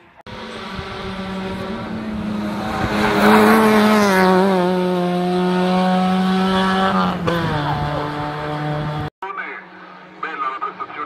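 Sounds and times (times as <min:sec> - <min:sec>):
race car engine at high revs: 0:00.3 - 0:09.1.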